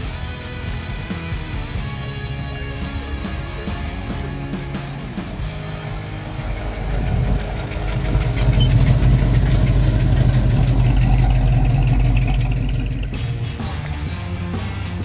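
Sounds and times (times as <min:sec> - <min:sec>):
car engine driving past slowly: 0:05.4 - 0:14.0.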